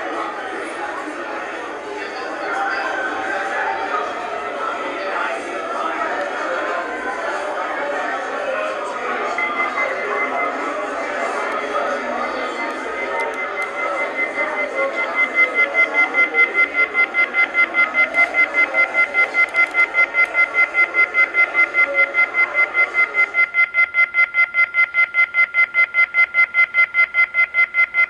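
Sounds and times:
murmur of sound: 0.0 - 23.8
phone off-hook beeping: 8.7 - 28.0.

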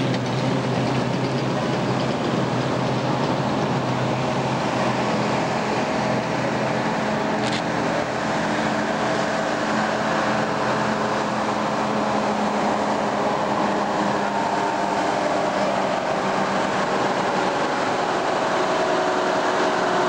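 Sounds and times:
heavy truck engines running: 0.0 - 20.0.

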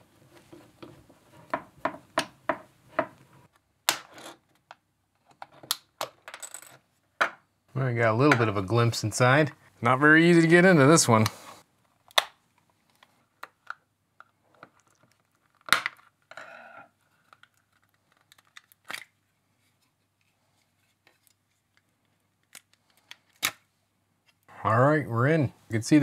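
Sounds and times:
plastic cracking: 17.2 - 19.2.

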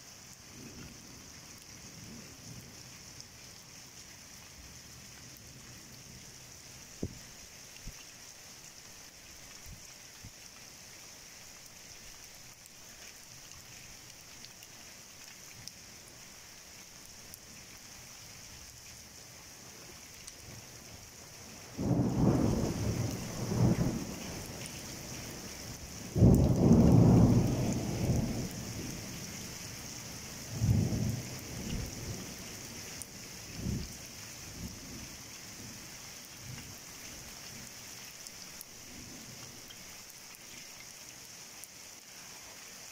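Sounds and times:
heavy rain hissing: 0.0 - 42.9
thunder rumbling: 21.8 - 24.6, 26.1 - 29.1.

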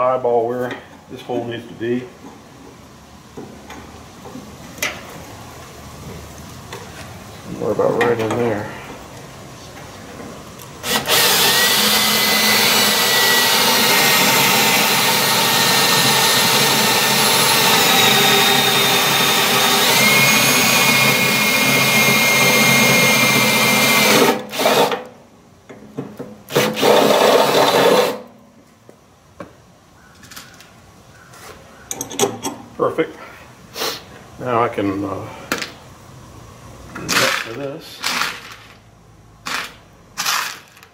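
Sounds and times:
drill boring through metal: 10.8 - 25.0, 26.5 - 28.2.

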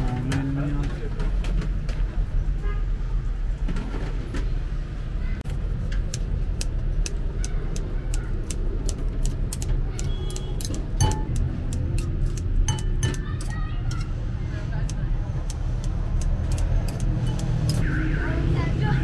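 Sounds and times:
street traffic rumble: 0.0 - 19.0
utensils clinking on ceramic and metal: 10.5 - 14.2, 16.5 - 17.8.

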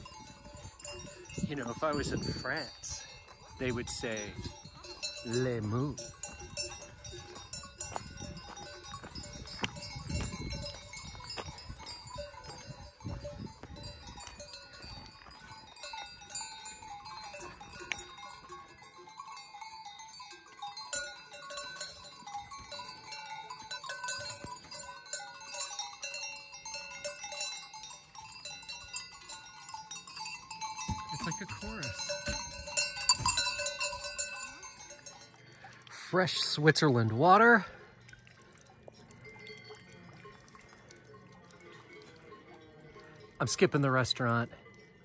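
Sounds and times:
cowbells clanking: 0.0 - 45.0.

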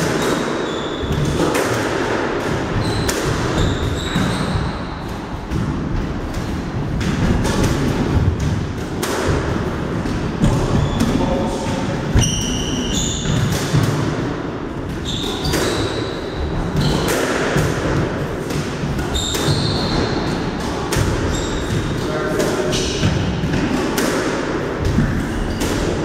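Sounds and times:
squash ball hitting rackets and walls: 0.0 - 26.0
shoes squeaking: 2.8 - 5.0, 10.6 - 11.6, 12.2 - 13.6, 15.0 - 17.1, 19.0 - 20.3, 21.2 - 21.9.

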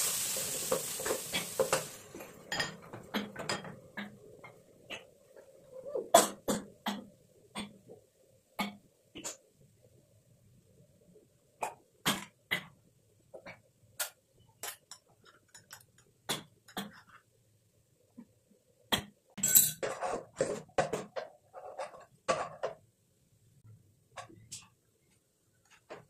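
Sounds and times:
utensils knocking on wok: 0.1 - 4.2.

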